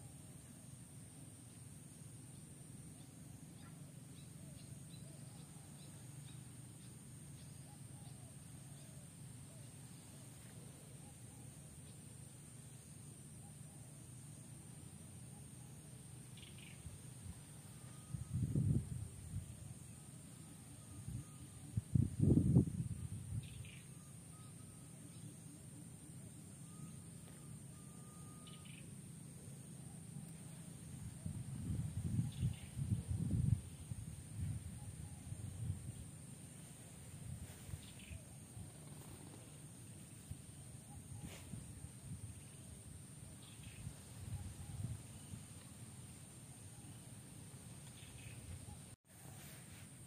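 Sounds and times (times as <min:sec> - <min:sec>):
steady low hum: 0:00.0 - 0:50.0
faint animal chirps: 0:02.3 - 0:12.4, 0:13.2 - 0:22.2, 0:22.8 - 0:45.8, 0:46.5 - 0:49.6
faint thin tone: 0:17.2 - 0:25.3, 0:26.4 - 0:28.8.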